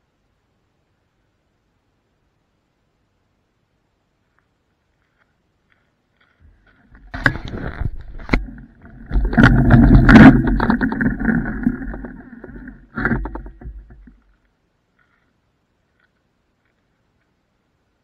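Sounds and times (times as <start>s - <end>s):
scooter rolling over gravel: 5.0s - 15.3s.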